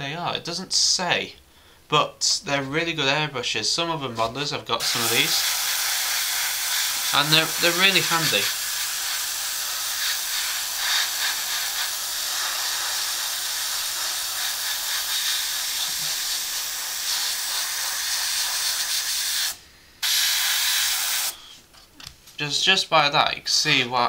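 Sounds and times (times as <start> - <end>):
airbrush spraying hiss: 4.8 - 21.6.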